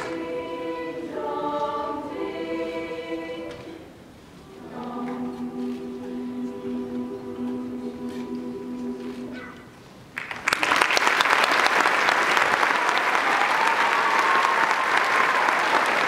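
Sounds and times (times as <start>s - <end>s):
choir holding a chord: 0.0s - 9.7s
audience applause: 10.1s - 16.0s.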